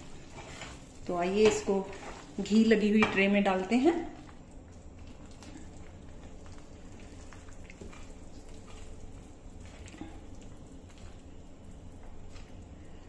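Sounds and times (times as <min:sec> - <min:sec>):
low steady hum: 0:00.0 - 0:13.0
spatula scraping sticky mixture: 0:00.1 - 0:03.2, 0:06.8 - 0:10.4.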